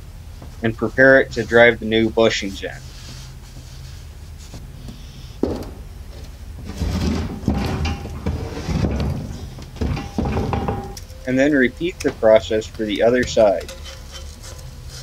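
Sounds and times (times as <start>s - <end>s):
metal scraping on wooden bench: 2.6s - 11.0s, 12.4s - 15.0s.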